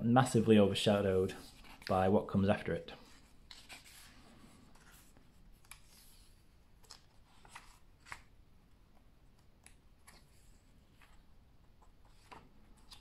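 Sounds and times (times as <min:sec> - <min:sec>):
book pages turning: 0:01.4 - 0:02.0, 0:03.0 - 0:08.4, 0:09.3 - 0:13.0.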